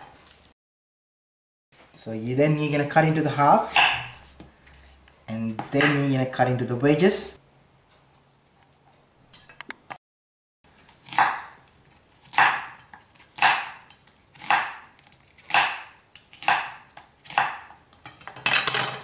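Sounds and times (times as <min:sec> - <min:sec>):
knife cutting onion on board: 0:03.0 - 0:04.5, 0:10.7 - 0:17.8.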